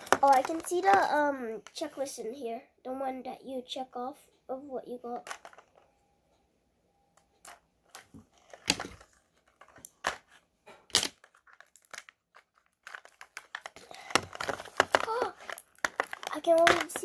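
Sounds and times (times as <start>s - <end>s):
plastic wrapping crinkling and tearing: 0.0s - 1.8s, 8.3s - 17.0s.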